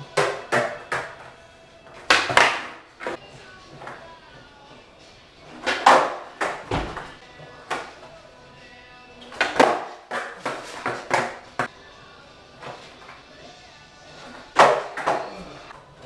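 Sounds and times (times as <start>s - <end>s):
skateboard clacking on concrete: 0.0s - 1.4s, 2.0s - 3.2s, 5.5s - 8.1s, 9.2s - 11.7s, 14.3s - 15.5s.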